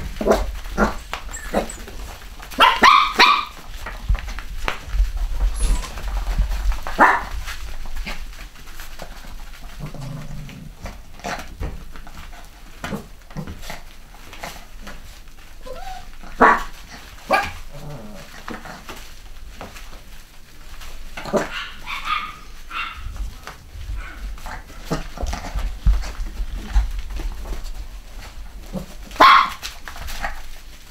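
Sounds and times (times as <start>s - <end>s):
puppies barking and yapping: 0.0s - 9.9s, 14.2s - 19.8s, 20.5s - 30.6s
small scuffling knocks: 10.8s - 30.9s.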